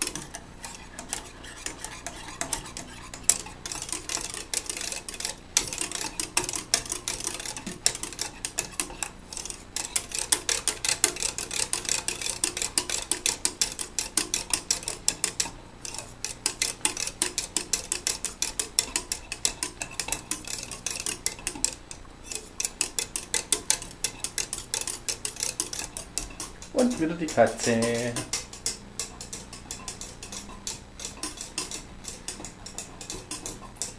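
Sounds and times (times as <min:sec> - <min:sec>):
whisk clicking against pot: 0:00.0 - 0:33.9.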